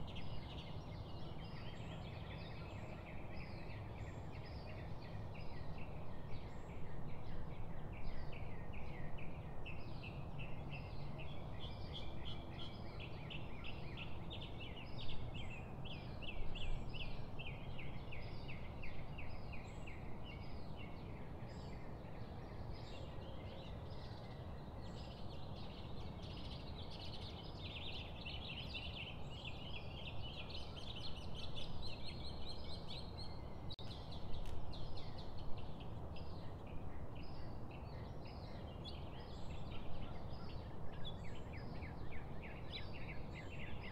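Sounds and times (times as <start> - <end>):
low background noise: 0.0 - 43.9.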